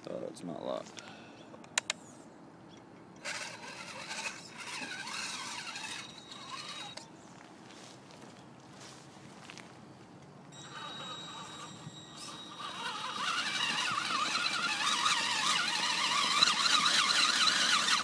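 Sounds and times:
toy car motor whining: 3.2s - 7.1s, 10.6s - 18.0s
steady high tone: 3.6s - 7.0s, 10.5s - 15.2s.

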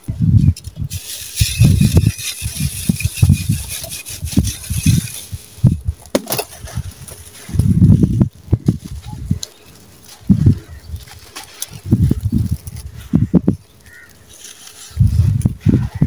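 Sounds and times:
sand pouring: 0.8s - 8.2s, 13.9s - 15.3s
block crunching in hands: 6.0s - 7.1s.

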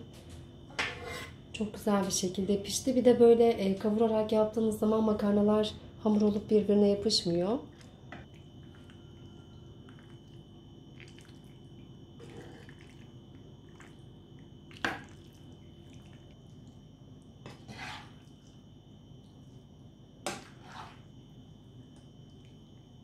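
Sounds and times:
faint steady hum: 0.0s - 23.0s
pasta squishing in a pan: 7.7s - 18.7s.

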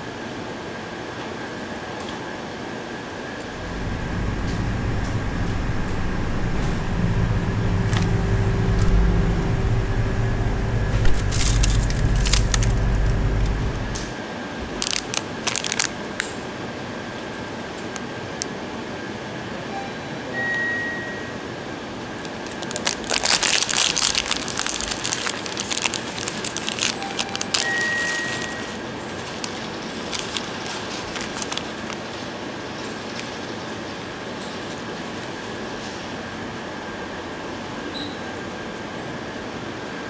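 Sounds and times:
steady background hiss: 2.5s - 37.9s
plastic wrapper crinkling: 3.6s - 14.1s, 14.8s - 16.3s, 22.2s - 33.4s.

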